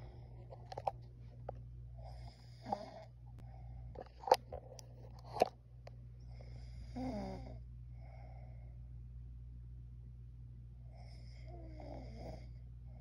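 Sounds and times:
steady low hum: 0:00.0 - 0:13.0
person snoring: 0:02.0 - 0:03.1, 0:06.4 - 0:07.6, 0:10.9 - 0:12.6.

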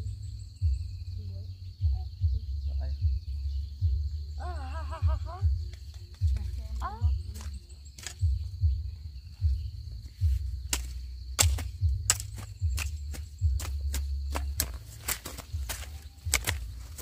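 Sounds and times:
high insect drone: 0:00.0 - 0:17.0
sharp knocks and dull thuds: 0:05.4 - 0:17.0.

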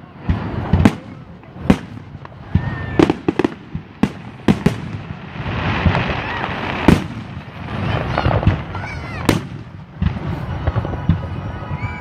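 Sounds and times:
firework bangs: 0:00.0 - 0:12.0
firework shells crackling: 0:00.0 - 0:12.0.

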